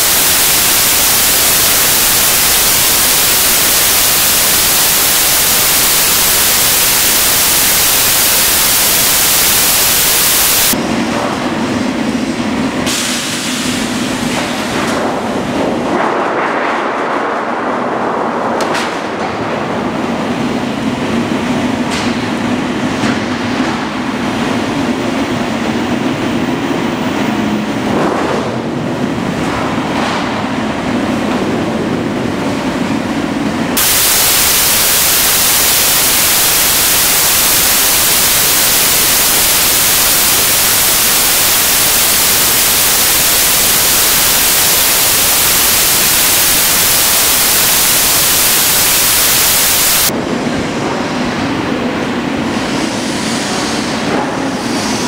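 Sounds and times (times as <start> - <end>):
steel cutting machine running: 0.0 - 10.8, 33.8 - 50.1
loud static-like hiss: 0.0 - 11.6, 12.5 - 55.0.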